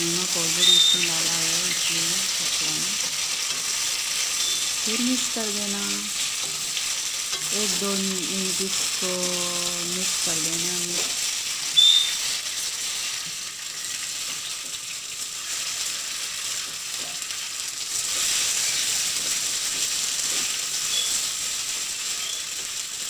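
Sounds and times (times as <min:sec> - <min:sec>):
hot oil sizzling: 0:00.0 - 0:23.0
brief high squeak: 0:04.4 - 0:04.7, 0:11.8 - 0:12.2
spoon stirring in a pan: 0:05.8 - 0:07.9.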